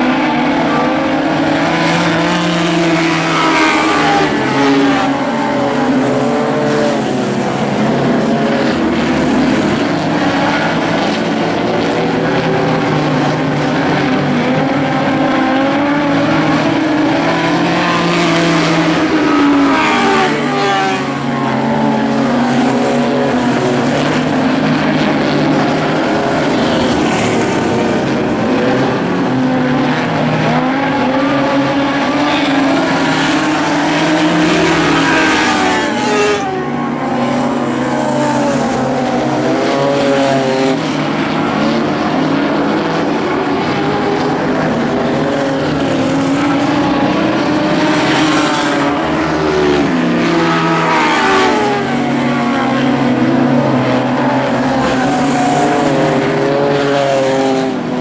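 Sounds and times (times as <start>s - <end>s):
sprint car engines revving: 0.0s - 58.0s.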